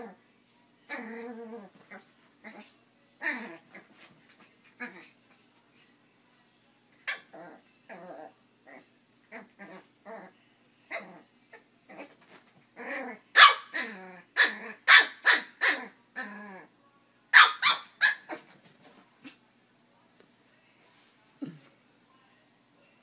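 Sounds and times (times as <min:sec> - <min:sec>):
dog yipping and growling: 0:00.9 - 0:04.0, 0:07.0 - 0:10.3, 0:10.9 - 0:12.2, 0:12.8 - 0:16.7, 0:17.4 - 0:18.4
small dog barking: 0:13.4 - 0:15.9, 0:17.3 - 0:18.4.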